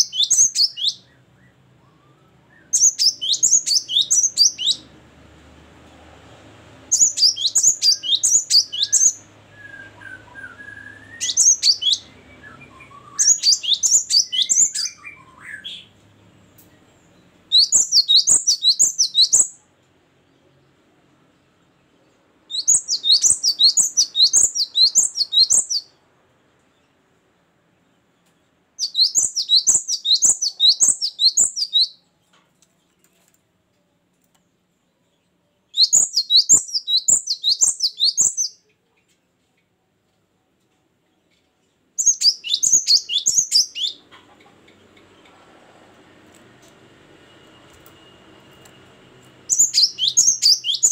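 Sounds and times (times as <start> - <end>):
faint lower bird chirps: 0.0 - 4.9, 6.9 - 33.1, 34.8 - 39.3, 41.1 - 45.4, 47.0 - 50.9
bird singing high notes: 47.3 - 50.9.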